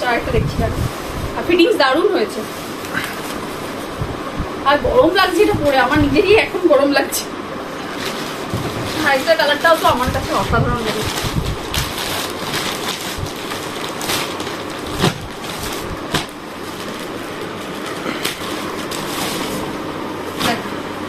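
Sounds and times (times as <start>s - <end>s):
plastic packaging crinkling: 7.8s - 20.6s.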